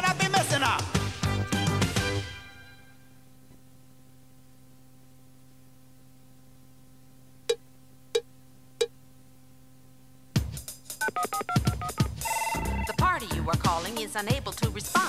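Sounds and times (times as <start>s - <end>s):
faint tape hum: 2.4s - 15.0s
electronic music with drums: 10.4s - 15.0s
two-tone electronic beeps: 11.0s - 13.1s.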